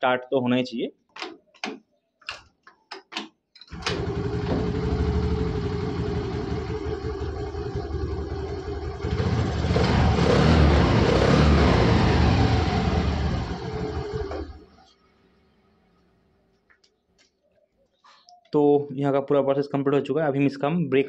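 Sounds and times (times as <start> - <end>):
scooter engine running: 3.7 - 14.6.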